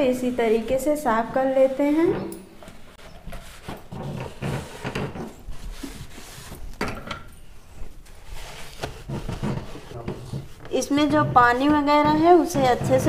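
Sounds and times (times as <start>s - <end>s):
cloth rubbing on plastic: 0.0s - 2.1s, 2.7s - 6.8s, 7.7s - 13.0s.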